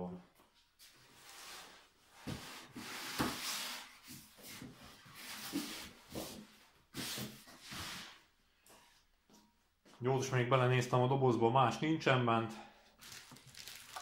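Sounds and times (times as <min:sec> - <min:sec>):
packaging rustling and scraping: 0:13.0 - 0:14.0.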